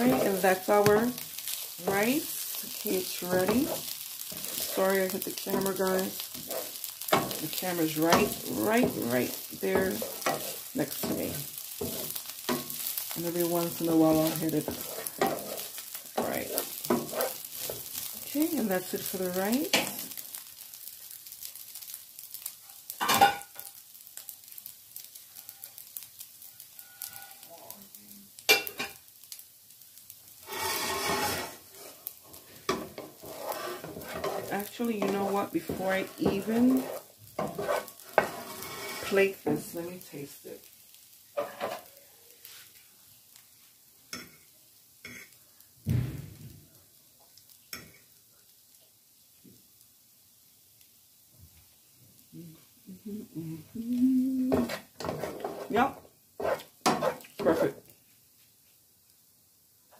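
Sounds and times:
metal fork scraping a skillet: 0.0s - 20.1s, 25.3s - 27.5s, 30.4s - 39.7s, 41.4s - 42.6s, 45.0s - 45.4s, 54.5s - 57.7s
fried rice sizzling in a pan: 0.0s - 59.9s
wooden spatula hitting pan: 33.9s - 38.4s
dull thump: 45.9s - 46.6s.

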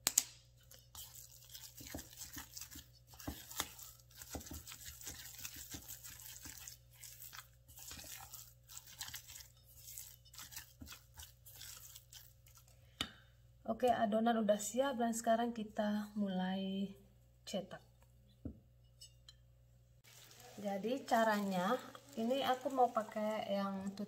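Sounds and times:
dough mixing crackle and rustle: 0.5s - 12.8s, 20.0s - 24.0s.

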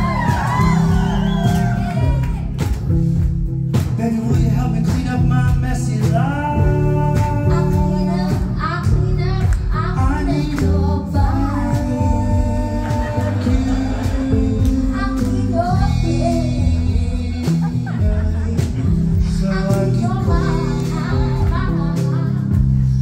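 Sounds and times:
live band music: 0.0s - 23.0s
singers holding long notes: 11.1s - 22.0s.

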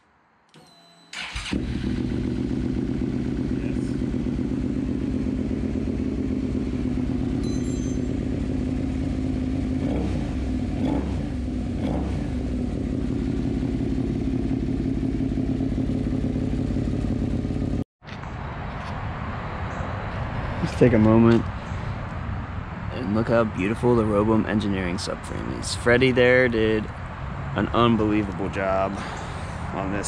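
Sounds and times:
engine throttle blips: 1.1s - 17.8s
motorcycle engine idling: 1.4s - 17.8s.

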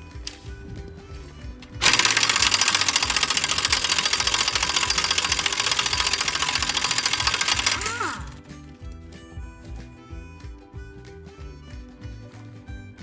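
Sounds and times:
background music: 0.0s - 13.0s
pneumatic wrench rattling: 1.6s - 8.4s.

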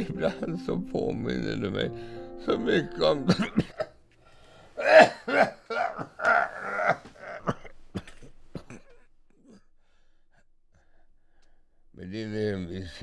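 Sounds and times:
man coughing: 3.3s - 4.0s, 4.8s - 9.7s.

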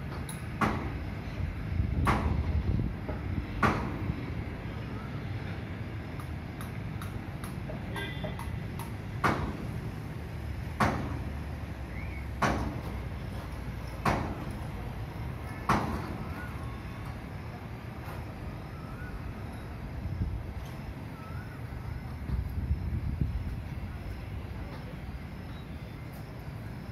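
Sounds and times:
steady low rumble: 0.9s - 7.4s, 18.6s - 26.9s.

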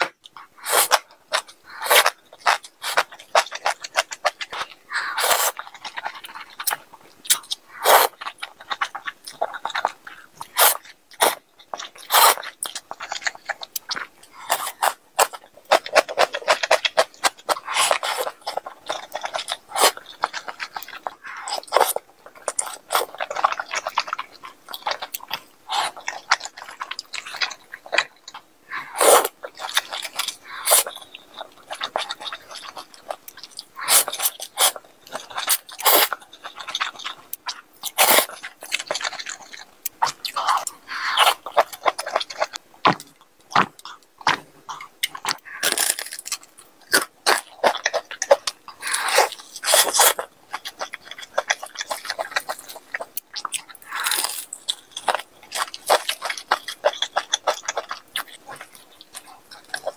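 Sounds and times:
wet chewing: 0.0s - 59.9s
noodles slurped: 28.0s - 43.8s.

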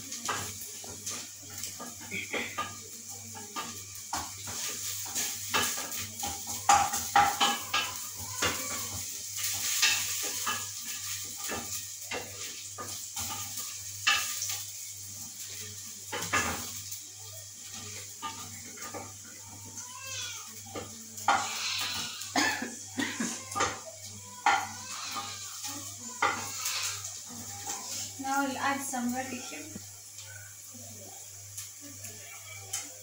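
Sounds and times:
food sizzling in a pot: 0.0s - 33.0s
wooden spoon scraping metal pot: 24.4s - 28.4s.

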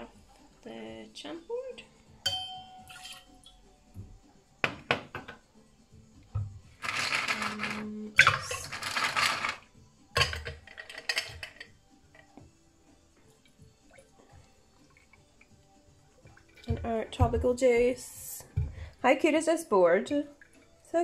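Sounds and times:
ice clinking on metal: 2.3s - 3.4s, 6.8s - 9.6s, 10.2s - 12.3s
ice cubes clattering in metal cup: 6.8s - 11.7s.

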